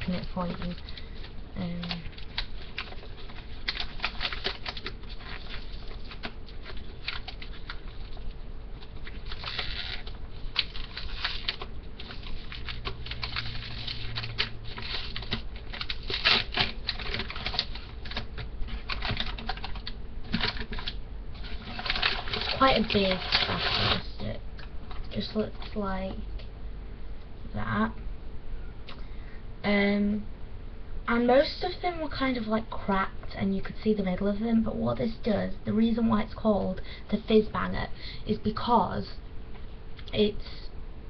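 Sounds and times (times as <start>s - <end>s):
wrapping crinkling and rustling: 0.0s - 26.2s.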